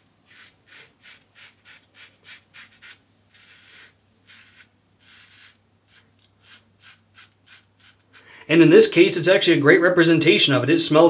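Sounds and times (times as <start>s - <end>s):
razor scraping stubble: 0.2s - 8.3s.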